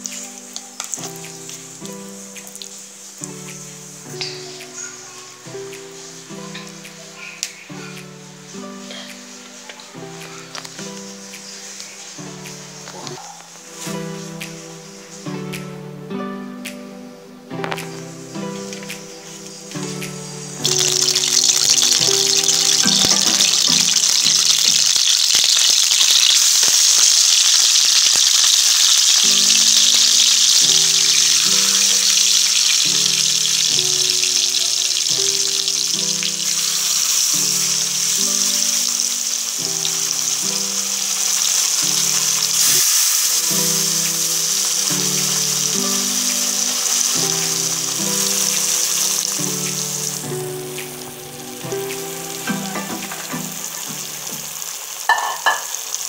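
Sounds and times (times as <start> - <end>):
fish sizzling in hot oil: 0.0 - 15.7, 17.6 - 56.0
background music: 0.0 - 55.1.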